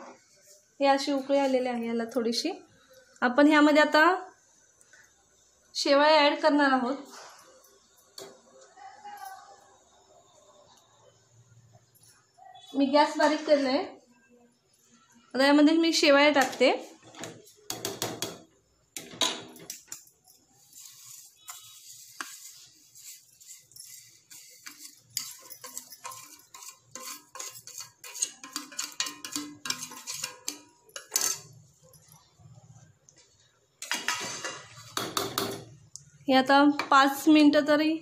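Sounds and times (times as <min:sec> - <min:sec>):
spoon scraping steel plate: 0:19.6 - 0:31.6
ladle tapping steel pot: 0:24.6 - 0:31.5.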